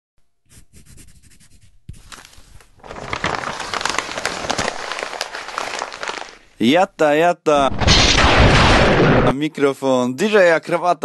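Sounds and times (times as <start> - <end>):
dense crackling and rustling: 2.0 - 6.9, 7.6 - 9.4.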